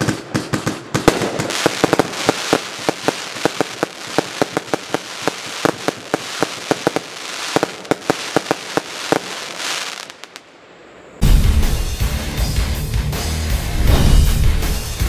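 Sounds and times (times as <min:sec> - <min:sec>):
fireworks bangs: 0:00.0 - 0:11.8, 0:13.8 - 0:15.0
crackling hiss of bursting stars: 0:00.9 - 0:11.3
loud heavy rock music: 0:11.2 - 0:15.0.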